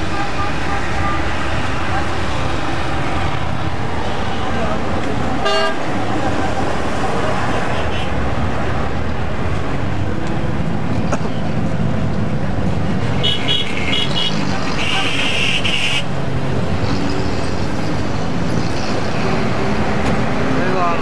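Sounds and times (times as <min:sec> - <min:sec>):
car engine and road noise: 0:00.0 - 0:21.0
held car horn: 0:05.4 - 0:05.8.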